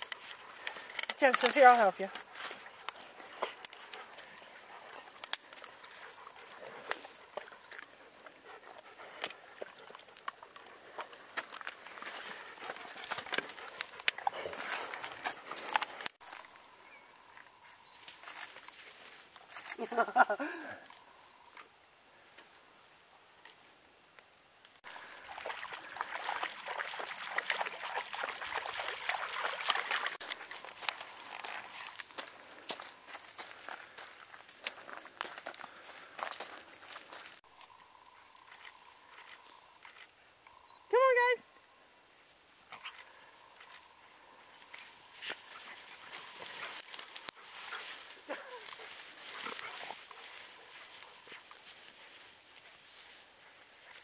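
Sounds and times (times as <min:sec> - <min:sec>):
dog gnawing a stick: 0:00.0 - 0:16.4, 0:44.6 - 0:52.7
dog splashing through water: 0:24.9 - 0:32.0.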